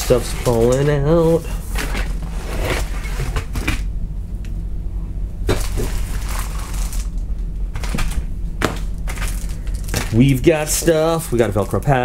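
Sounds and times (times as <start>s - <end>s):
steady low hum: 0.0s - 12.0s
plastic packaging rustling: 5.5s - 7.2s, 8.8s - 12.0s.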